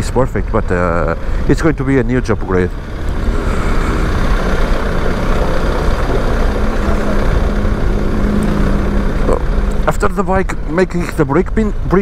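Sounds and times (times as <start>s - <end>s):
wind and road noise: 0.0s - 12.0s
motorcycle engine running: 0.5s - 12.0s.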